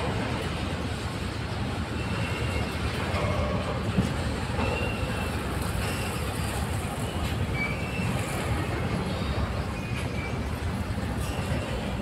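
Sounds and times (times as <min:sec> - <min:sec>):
train wheels rumbling on rail: 0:00.0 - 0:12.0
faint wheel squeals: 0:01.9 - 0:03.1, 0:04.5 - 0:12.0.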